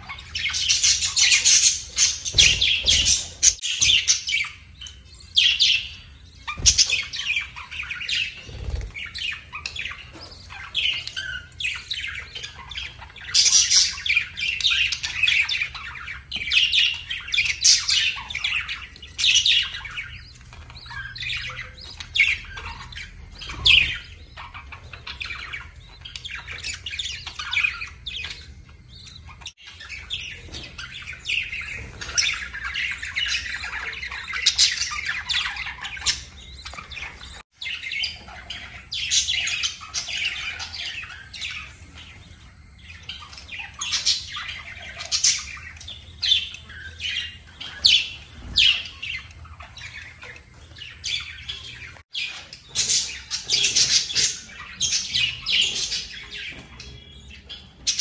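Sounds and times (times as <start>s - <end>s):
budgerigars chattering: 0.0s - 58.0s.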